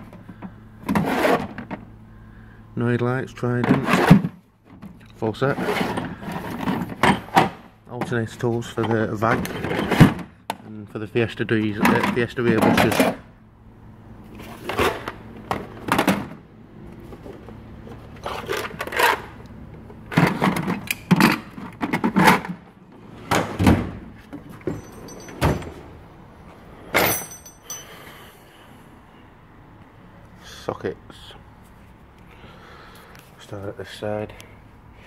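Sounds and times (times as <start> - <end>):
plastic cases clattering in metal drawer: 11.8 - 13.2, 14.7 - 16.4, 20.1 - 22.6.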